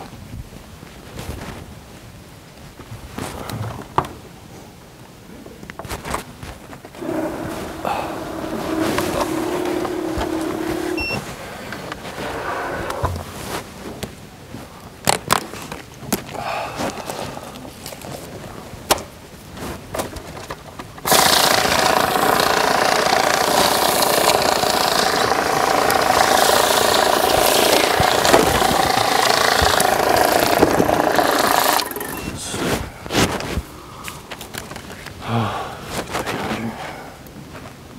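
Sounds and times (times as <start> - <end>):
banknote counting machine running: 7.0 - 11.2, 21.1 - 32.4.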